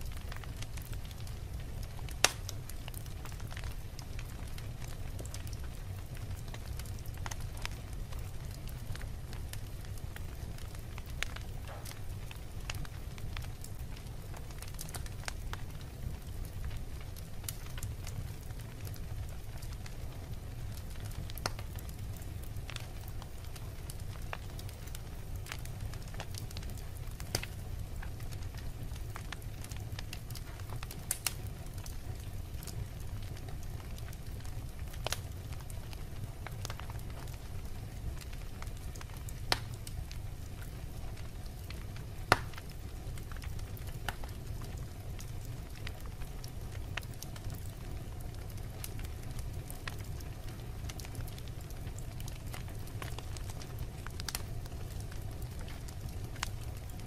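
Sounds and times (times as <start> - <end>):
log fire crackling: 0.0 - 57.0
sharp pops of fire: 0.1 - 20.0, 20.8 - 47.8, 48.4 - 57.0.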